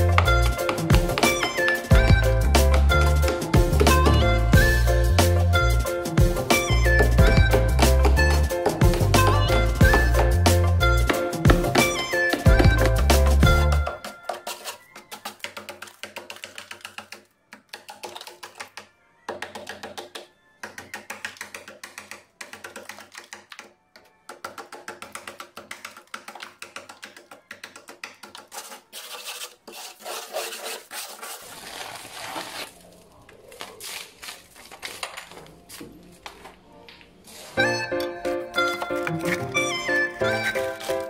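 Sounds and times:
ice scraping in freezer: 0:14.0 - 0:16.4, 0:28.5 - 0:33.0
faint music: 0:32.6 - 0:41.0.

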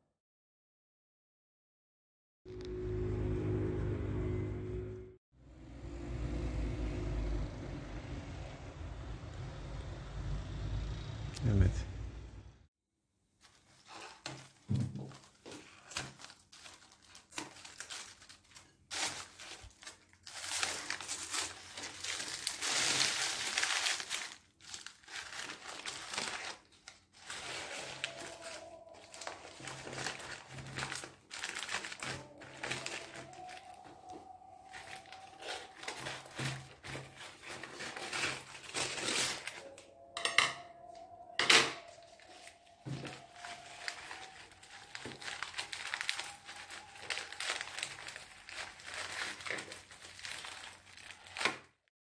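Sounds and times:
aluminium foil crinkling and tearing: 0:13.4 - 0:39.8, 0:41.6 - 0:51.8.

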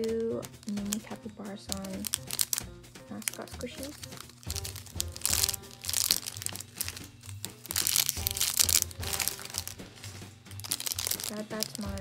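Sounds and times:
background music: 0:00.0 - 0:12.0
plastic bags crinkling: 0:00.0 - 0:12.0.

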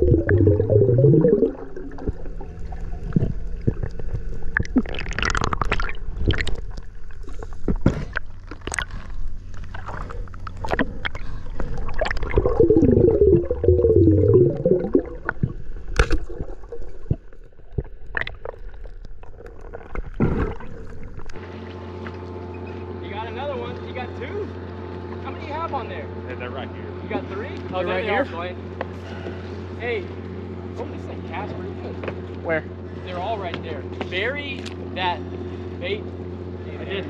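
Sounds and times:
wavering whine: 0:00.0 - 0:04.7
boat engine humming: 0:00.0 - 0:19.9
underwater gurgling and sloshing: 0:00.0 - 0:22.8.

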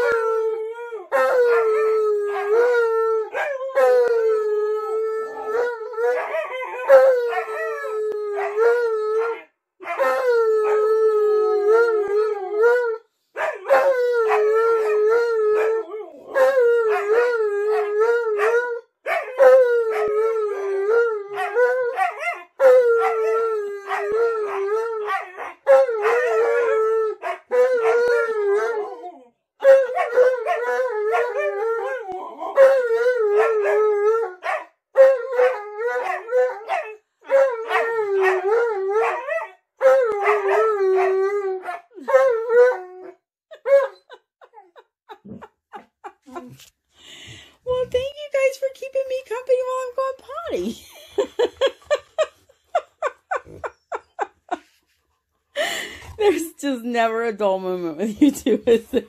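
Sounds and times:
dogs howling: 0:00.0 - 0:45.5.

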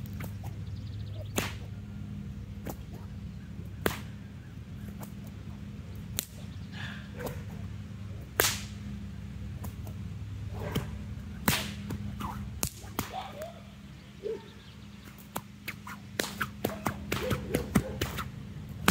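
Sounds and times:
bullwhip cracks: 0:00.0 - 0:00.6, 0:01.2 - 0:01.8, 0:02.6 - 0:03.1, 0:03.7 - 0:04.2, 0:04.9 - 0:05.4, 0:06.0 - 0:06.5, 0:08.3 - 0:08.9, 0:10.6 - 0:13.6, 0:15.0 - 0:18.9.

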